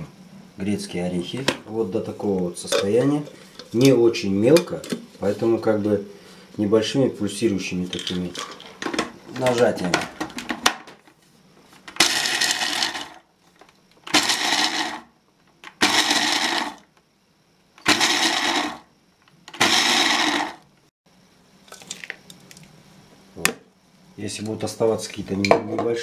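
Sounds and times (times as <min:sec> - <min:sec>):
blender chopper grinding nuts: 0:11.9 - 0:13.2, 0:14.0 - 0:16.9, 0:17.8 - 0:20.8.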